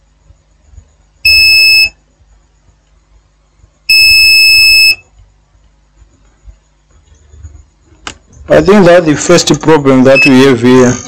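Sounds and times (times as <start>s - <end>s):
high-pitched electronic beeps: 10.0s - 10.6s.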